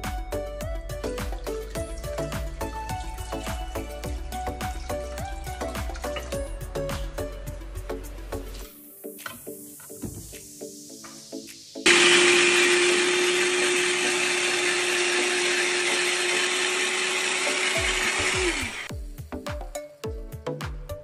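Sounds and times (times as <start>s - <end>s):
background music with beat: 0.0s - 11.9s, 17.6s - 21.0s
electric grater motor humming: 11.9s - 18.9s.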